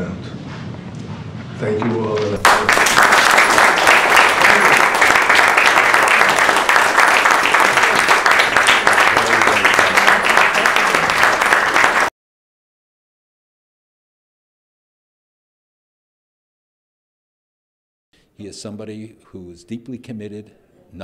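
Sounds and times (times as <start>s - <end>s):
audience applauding: 1.8s - 12.1s.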